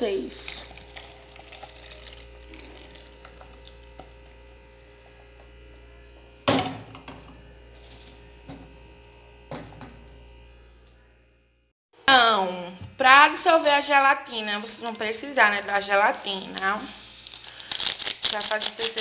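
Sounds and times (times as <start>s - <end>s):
caramel crackling and sizzling: 0.0s - 6.6s, 7.6s - 8.4s, 14.6s - 19.0s
steady hum: 0.0s - 18.2s.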